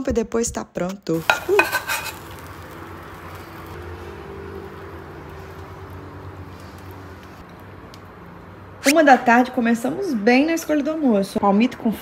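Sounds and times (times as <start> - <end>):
spatula and pan clinking on plate: 1.2 - 2.4.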